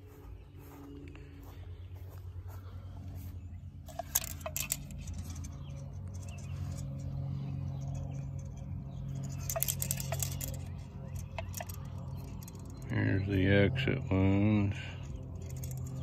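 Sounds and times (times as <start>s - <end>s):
low hum: 0.0s - 16.0s
metal can clicking and crinkling: 3.9s - 5.5s, 9.2s - 12.8s.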